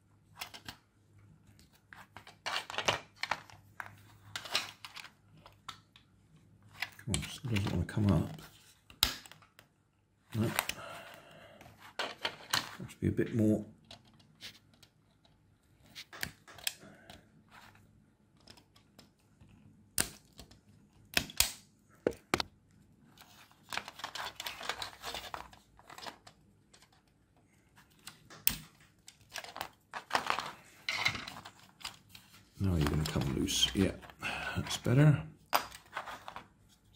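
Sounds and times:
plastic scraping and rustling: 23.1 - 27.1, 27.7 - 34.8, 35.8 - 36.9.

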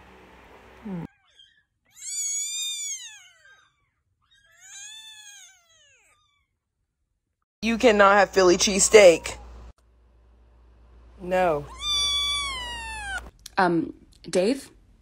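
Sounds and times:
kitten mewing: 11.6 - 13.3.

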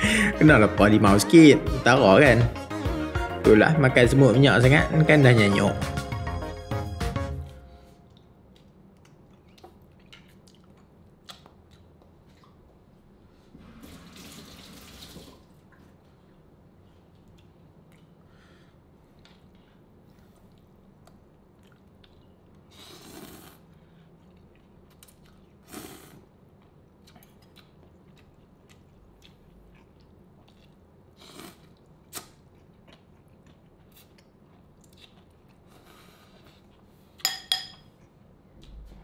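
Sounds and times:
soft chewing: 8.0 - 13.5, 15.6 - 39.0
fork clinking against bowl: 37.2 - 37.9.

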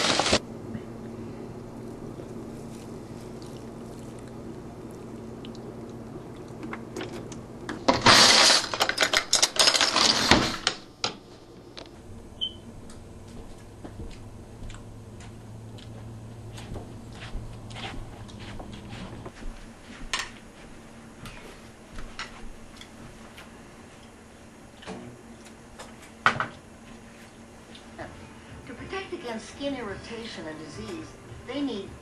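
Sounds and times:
cutlery rattling in drawer: 7.9 - 10.8
faint low hum: 11.3 - 32.0.

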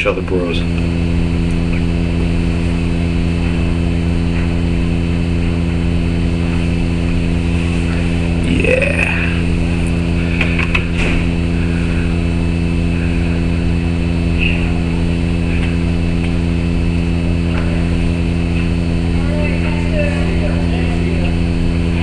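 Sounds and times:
loud steady low hum: 0.0 - 22.0.

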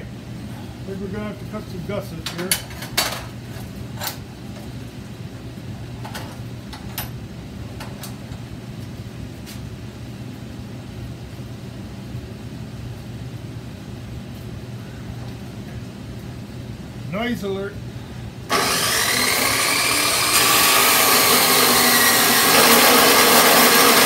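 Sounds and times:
steady low hum: 0.0 - 22.6.

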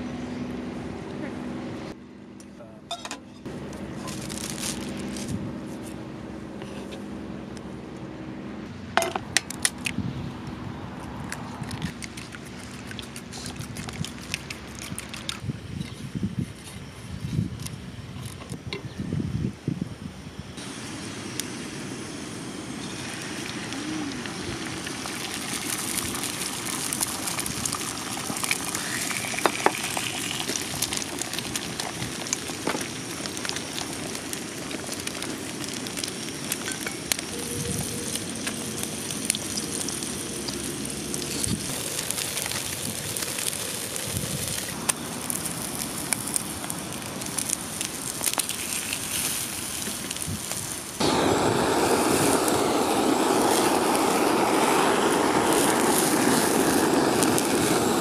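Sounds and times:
food sizzling and popping: 11.1 - 15.5, 22.6 - 58.0
steady rushing noise: 50.8 - 58.0.

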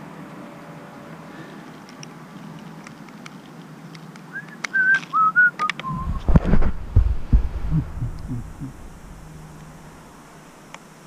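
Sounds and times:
low thumps and rumbling: 5.9 - 10.7.

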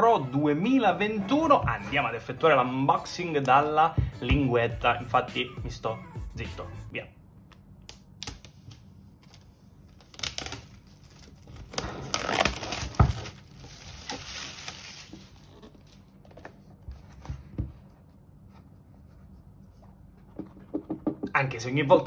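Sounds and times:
tear strip pulled on plastic film: 8.2 - 15.5
plastic film crinkling and tearing: 8.2 - 16.0.

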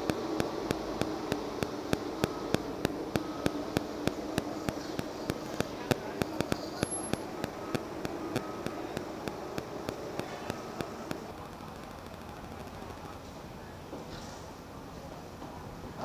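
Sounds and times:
sharp regular ticking: 0.0 - 13.2
vehicle engine hum: 0.0 - 13.7.

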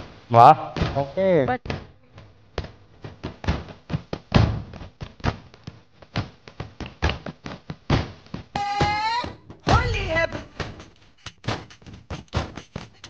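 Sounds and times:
fast drum strikes: 9.4 - 13.0.

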